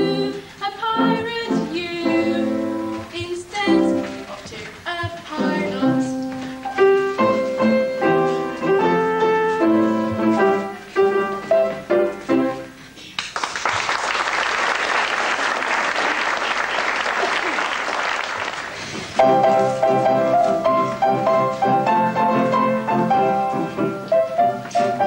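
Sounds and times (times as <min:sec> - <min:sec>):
piano playing held chords: 0:00.0 - 0:04.3, 0:05.3 - 0:12.8, 0:19.2 - 0:25.0
audience applause: 0:13.2 - 0:19.2.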